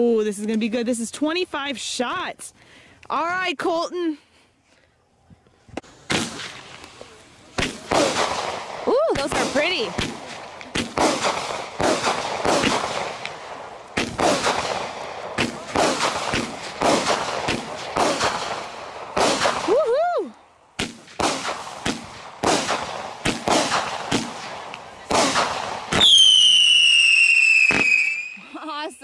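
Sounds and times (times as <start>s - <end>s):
firework cake reports: 5.9s - 20.1s, 20.8s - 29.0s
high falling firework whistle: 25.9s - 28.5s.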